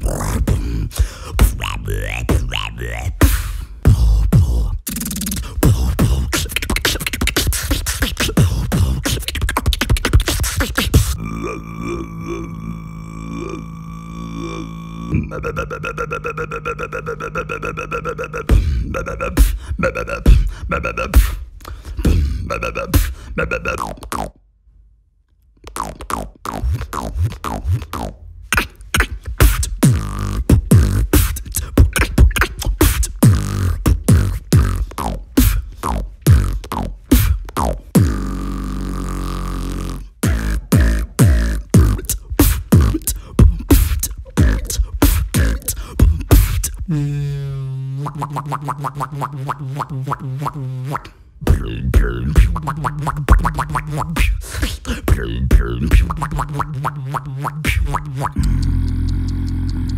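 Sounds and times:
beatboxing: 0.0 - 24.4, 25.6 - 59.9
wavering pitched vocal tone: 0.0 - 24.4, 25.7 - 59.9
held low bass note: 11.2 - 15.5.

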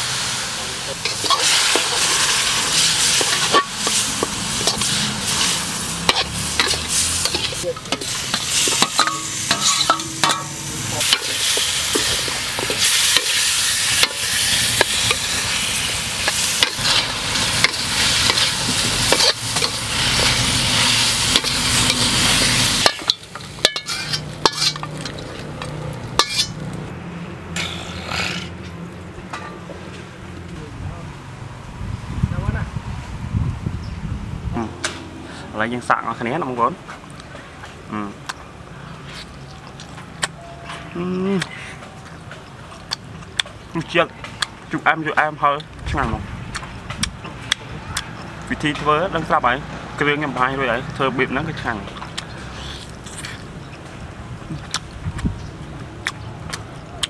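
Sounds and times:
chicken sizzling in a wok: 0.0 - 26.5
metal spatula scraping a wok: 0.9 - 26.7.

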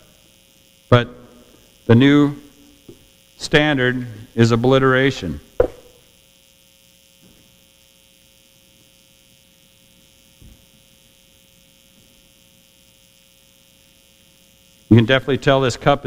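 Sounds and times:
electrical hum with hiss: 0.0 - 16.0.

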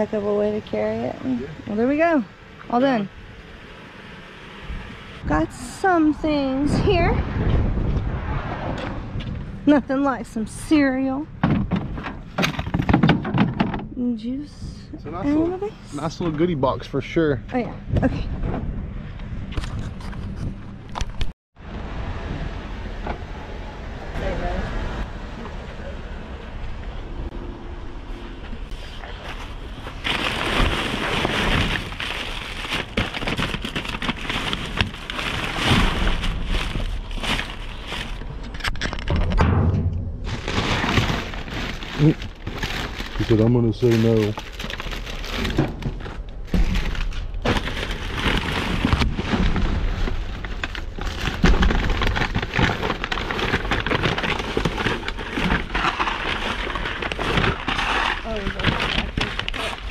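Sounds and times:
low rumble: 0.0 - 59.9
plastic bags rustling and crackling: 29.1 - 38.6, 40.2 - 59.9
knocks in a dumpster: 39.2 - 40.4.

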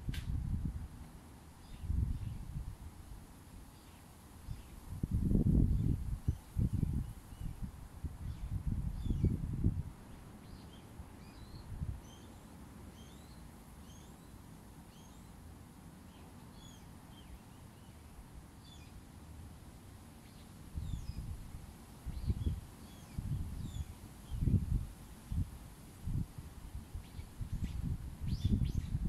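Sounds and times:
wind buffeting microphone: 0.0 - 0.9, 1.7 - 3.0, 4.8 - 10.0, 20.7 - 29.0
small birds chirping: 1.6 - 2.6, 3.7 - 4.9, 5.6 - 15.4, 16.0 - 19.2, 20.1 - 21.4, 22.0 - 25.5, 26.9 - 29.0.

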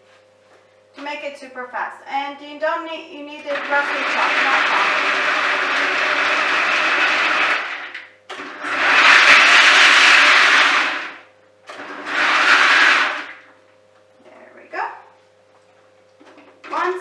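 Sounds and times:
food chopper chopping nuts: 3.4 - 13.4.

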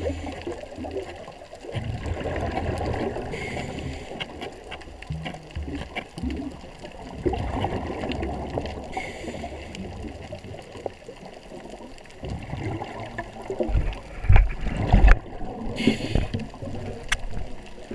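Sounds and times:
underwater gurgling: 0.0 - 17.9
short hiss: 15.8 - 16.4.

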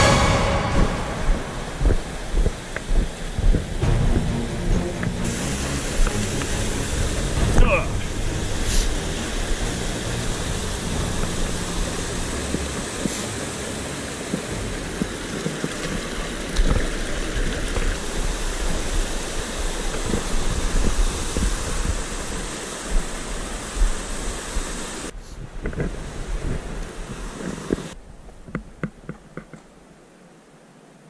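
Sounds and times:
stream rushing over rocks: 1.8 - 25.2.

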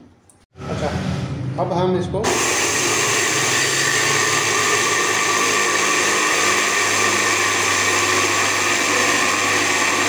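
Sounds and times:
small electric grinder running: 2.3 - 10.0.

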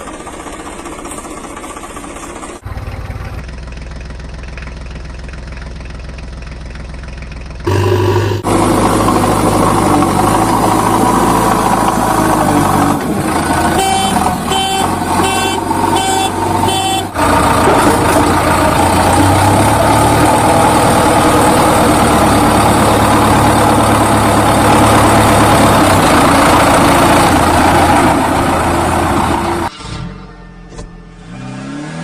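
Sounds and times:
heavy engine rumble: 0.0 - 31.2
short truck horn beeps: 13.6 - 17.2.

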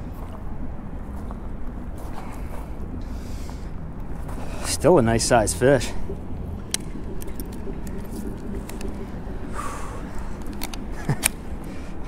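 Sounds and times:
road traffic rumble: 0.0 - 12.0
plastic clicks and rattles: 10.4 - 11.4.

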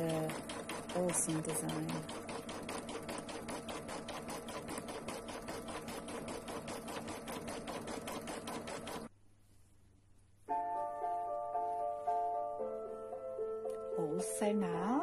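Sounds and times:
embroidery machine stitching: 0.0 - 9.1.

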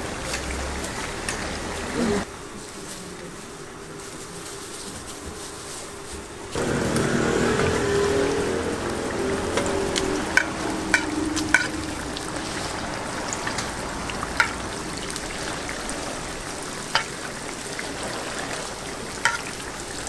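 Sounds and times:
food sizzling in oil: 6.5 - 20.0.

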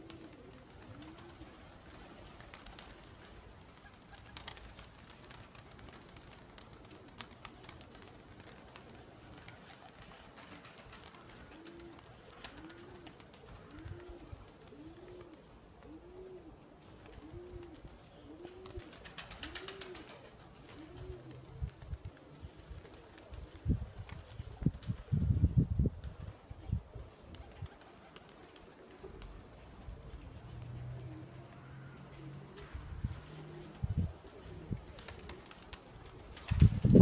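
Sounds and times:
pigeon cooing: 0.0 - 2.3, 11.1 - 23.4, 26.6 - 36.3
faint outdoor background: 0.0 - 37.0.

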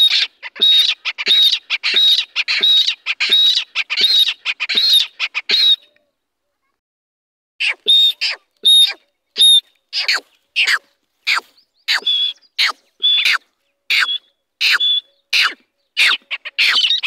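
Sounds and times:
chicks squawking: 0.0 - 5.8, 7.6 - 17.0.

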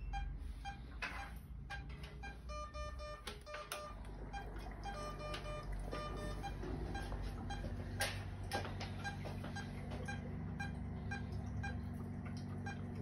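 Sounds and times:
short electronic beeps: 0.0 - 8.0, 9.0 - 11.8
low machine hum: 0.0 - 13.0.

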